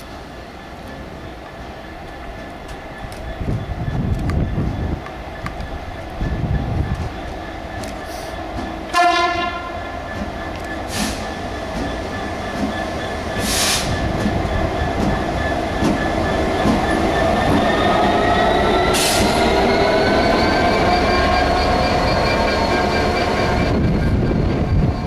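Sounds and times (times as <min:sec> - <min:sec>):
locomotive horn toot: 0:08.9 - 0:09.9
diesel locomotive engine thrash: 0:10.8 - 0:24.9.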